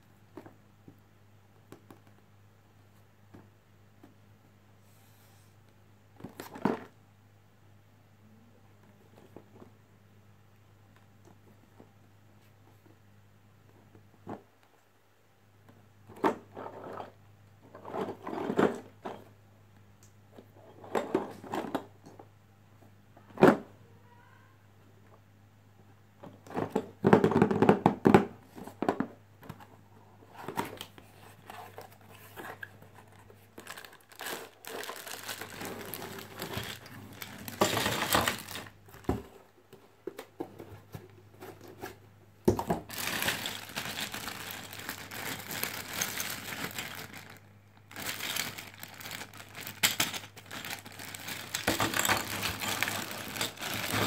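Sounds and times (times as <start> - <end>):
plastic bag crinkling: 33.4 - 39.1, 42.8 - 54.0.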